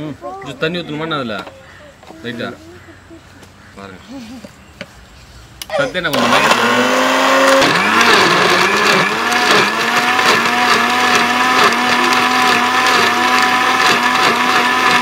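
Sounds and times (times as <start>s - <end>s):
mixer grinder motor whine: 6.1s - 15.0s.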